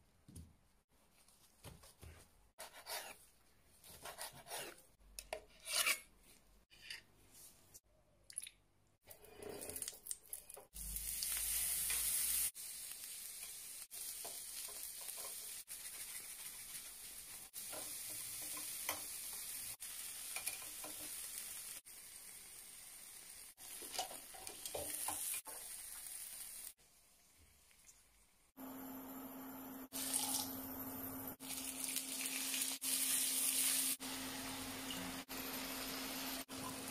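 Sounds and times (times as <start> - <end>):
octopus sizzling on a grill: 10.8 - 26.8, 31.5 - 36.7.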